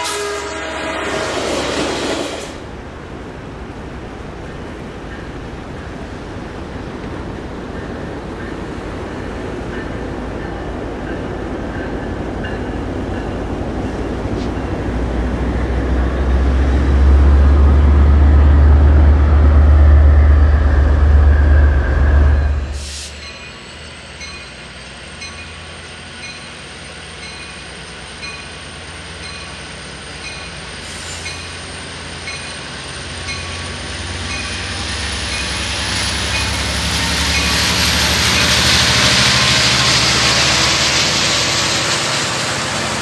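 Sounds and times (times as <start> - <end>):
locomotive engine rumble: 0.0 - 43.0.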